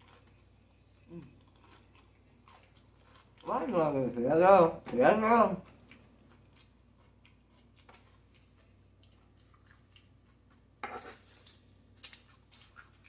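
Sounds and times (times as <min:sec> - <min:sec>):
closed-mouth chewing: 0:00.0 - 0:03.5
fork crackling tortilla chips: 0:00.0 - 0:03.8, 0:05.6 - 0:13.0.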